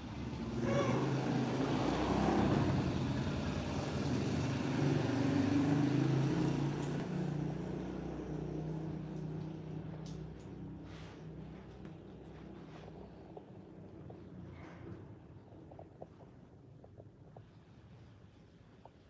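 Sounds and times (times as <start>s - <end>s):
vehicle engine running: 0.0s - 15.4s.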